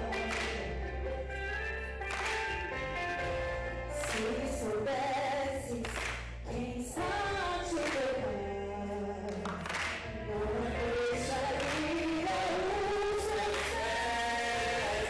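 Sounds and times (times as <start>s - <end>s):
woman singing gospel song: 0.0s - 2.3s, 3.9s - 15.0s.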